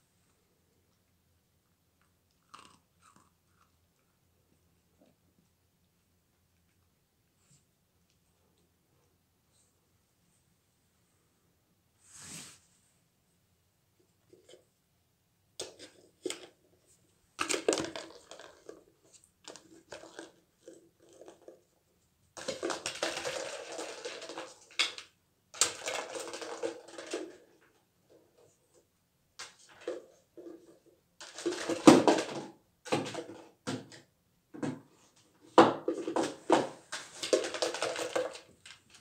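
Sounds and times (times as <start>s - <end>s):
treats rattling in plastic cup: 17.4s - 21.6s, 22.4s - 27.6s, 29.4s - 33.4s, 36.0s - 39.0s.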